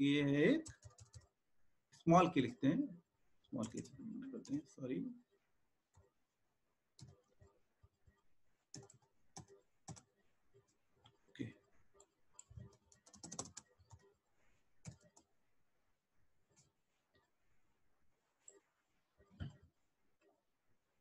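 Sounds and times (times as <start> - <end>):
computer keyboard keystrokes: 0.6 - 1.3, 8.7 - 10.1, 12.0 - 14.0, 14.8 - 15.3.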